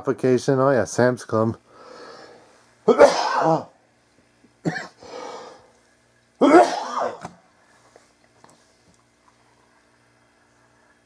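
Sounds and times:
person coughing: 2.9s - 3.7s, 4.6s - 5.1s, 6.4s - 7.4s.

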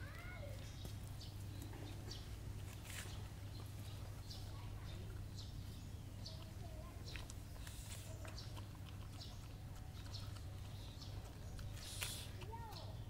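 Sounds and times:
dog chewing and lapping: 3.6s - 13.0s.

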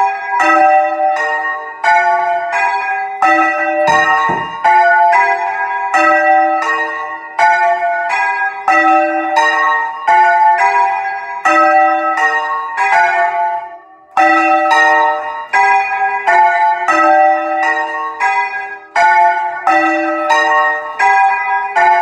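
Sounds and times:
church bells ringing: 0.0s - 22.0s
dull low thump: 3.9s - 4.9s.

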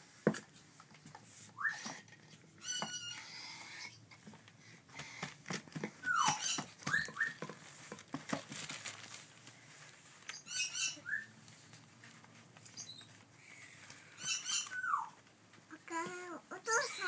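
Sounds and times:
parrot chicks begging calls: 2.6s - 4.0s, 6.0s - 7.4s, 10.3s - 11.3s, 12.8s - 15.2s.

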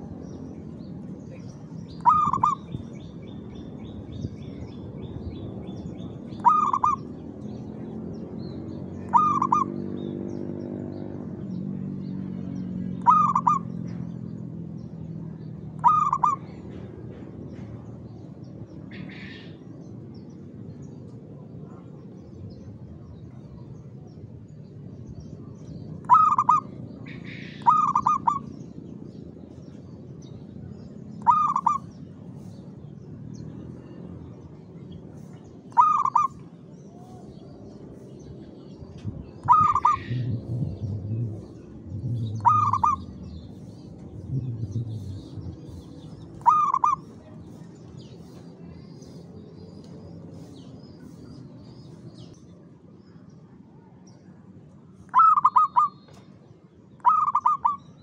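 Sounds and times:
dove cooing: 2.0s - 2.7s, 6.4s - 7.1s, 9.1s - 9.8s, 13.0s - 13.7s, 15.8s - 16.4s, 26.1s - 26.7s, 27.6s - 28.5s, 31.2s - 31.8s, 35.7s - 36.4s, 39.4s - 43.6s, 44.2s - 47.0s, 55.1s - 55.9s, 57.0s - 57.8s
low hum: 19.6s - 52.5s.

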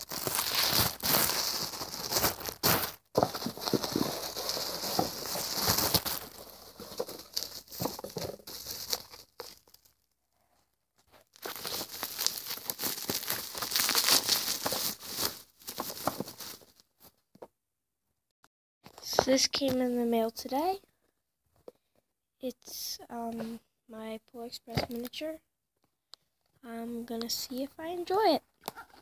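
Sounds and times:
packaging tearing: 0.0s - 10.0s, 11.4s - 16.6s
bubble wrap and plastic crinkling: 0.0s - 10.1s, 11.1s - 16.9s.

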